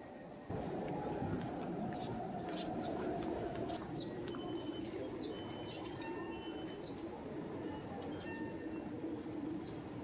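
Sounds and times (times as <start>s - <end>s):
low hum of town ambience: 0.0s - 10.0s.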